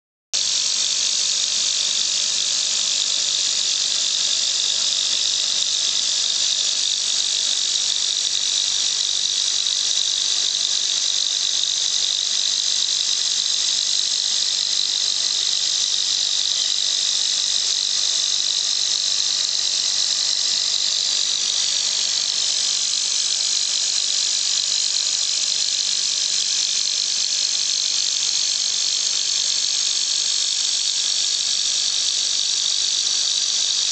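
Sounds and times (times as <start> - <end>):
mill spindle whine and hiss: 0.4 - 33.9.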